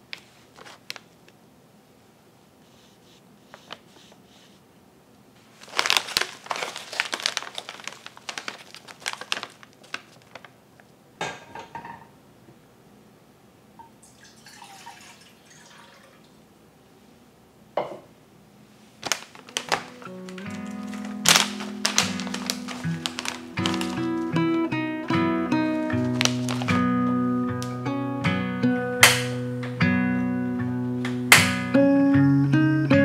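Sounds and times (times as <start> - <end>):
paper pouch crinkling: 0.3 - 1.1, 5.4 - 10.6, 19.0 - 24.8, 25.5 - 27.8.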